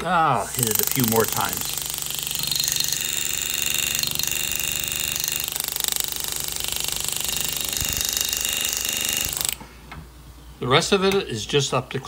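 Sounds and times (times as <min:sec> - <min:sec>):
pneumatic hammer handpiece rapid strokes: 0:00.5 - 0:09.6.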